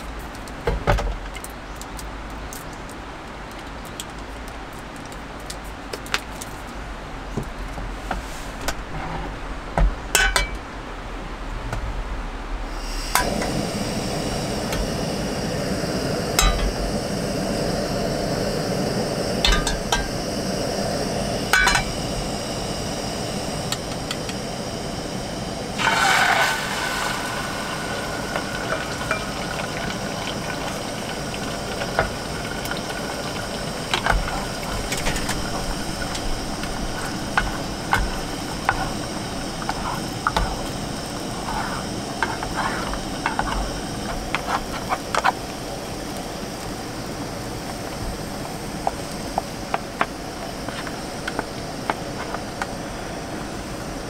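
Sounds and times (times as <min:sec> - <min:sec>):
steady hiss: 0:00.0 - 0:54.0
kitchenware clinking: 0:10.1 - 0:10.6.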